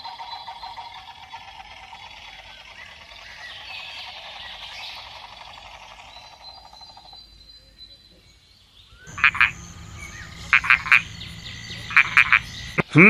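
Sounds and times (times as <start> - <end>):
croak-like calls: 0.0 - 7.3, 9.0 - 13.0
low steady hum: 9.1 - 13.0.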